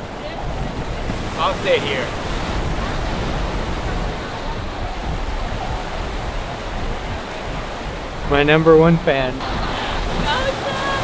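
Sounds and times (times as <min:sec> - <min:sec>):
ocean surf rushing: 0:00.0 - 0:11.0
wind buffeting microphone: 0:00.0 - 0:11.0.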